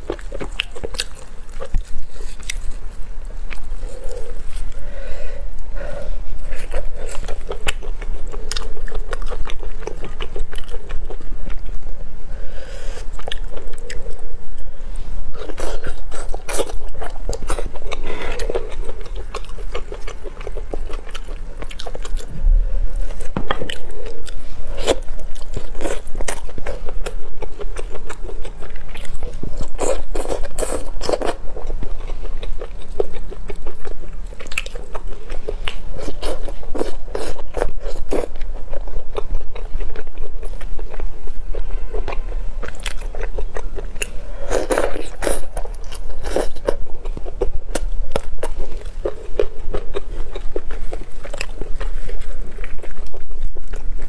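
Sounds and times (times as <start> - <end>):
crispy skin crunching: 0.0 - 4.8
chewing roast chicken: 0.0 - 54.0
low hum: 1.2 - 30.3.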